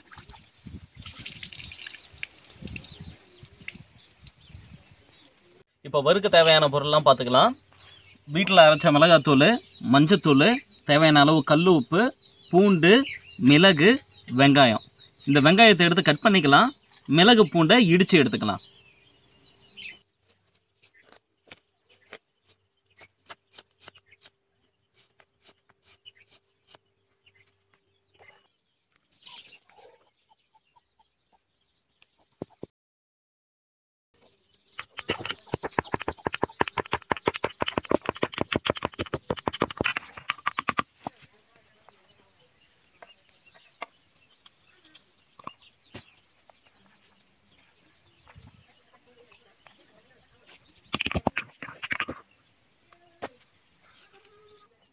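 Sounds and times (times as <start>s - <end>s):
birds chirping: 0.0s - 32.7s, 34.2s - 54.9s
chickens clucking: 29.5s - 32.7s, 34.8s - 41.2s
faint bird calls: 34.7s - 54.9s.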